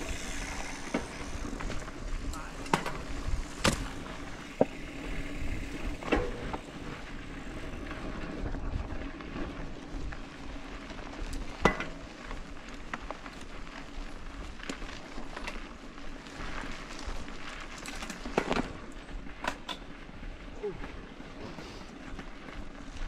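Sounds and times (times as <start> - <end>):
bike rolling over dirt trail: 0.0 - 23.0
bike clacks and knocks: 2.6 - 4.9, 5.9 - 6.8, 11.3 - 13.0, 17.8 - 20.0.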